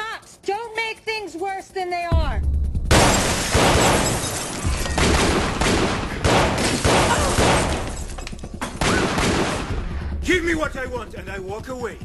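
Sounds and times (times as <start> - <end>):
glass breaking: 2.9 - 5.3, 6.6 - 8.4
pistol gunshots: 2.9 - 9.8.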